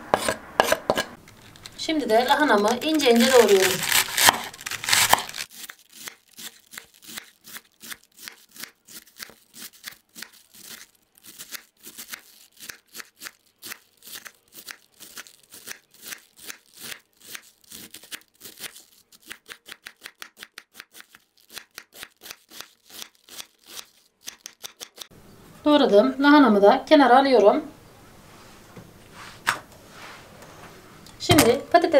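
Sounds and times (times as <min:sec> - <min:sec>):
knife slicing cabbage on board: 0:00.1 - 0:01.1, 0:02.5 - 0:25.1.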